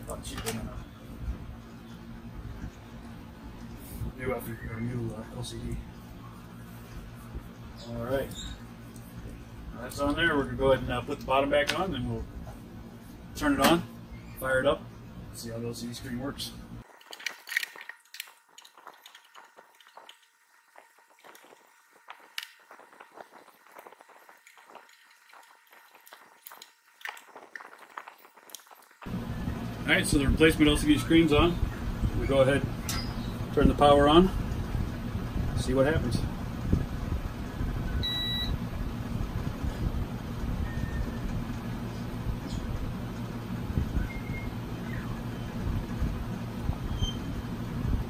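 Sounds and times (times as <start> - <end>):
low background rumble: 29.0 - 48.0.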